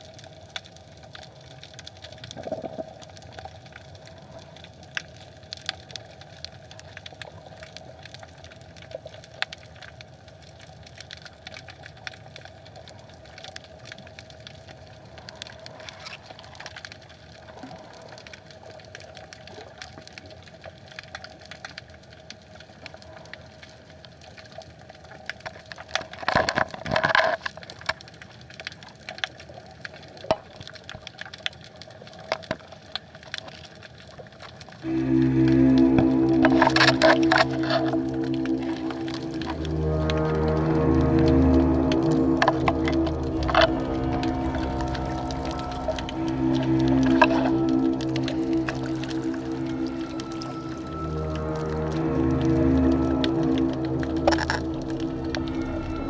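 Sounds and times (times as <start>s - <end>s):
faint steady hum: 34.8s - 56.0s.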